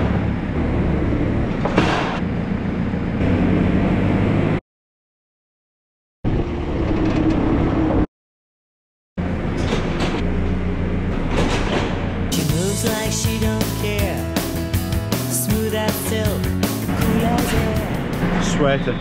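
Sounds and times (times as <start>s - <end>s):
diesel engine running: 0.0s - 4.6s, 9.2s - 19.0s.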